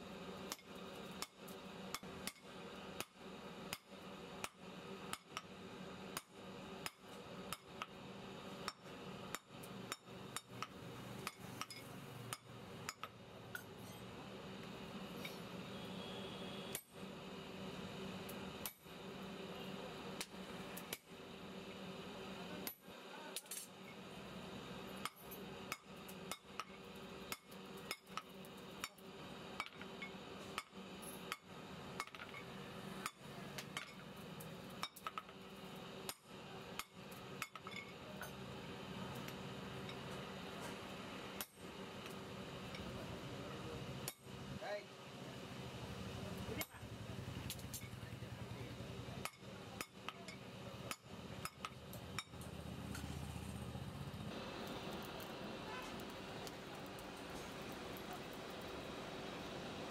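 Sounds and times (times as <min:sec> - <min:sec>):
hammer striking steel on anvil: 0:08.6 - 0:14.0.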